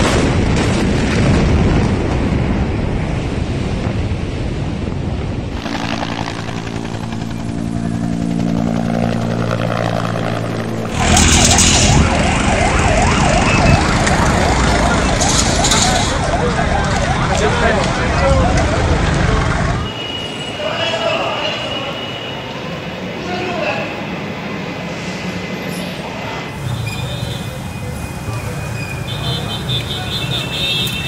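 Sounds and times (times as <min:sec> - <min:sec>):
helicopter rotor and engine: 0:05.5 - 0:16.5, 0:17.6 - 0:19.9
emergency siren wailing: 0:05.5 - 0:20.0
explosion blast rumble: 0:10.7 - 0:19.9.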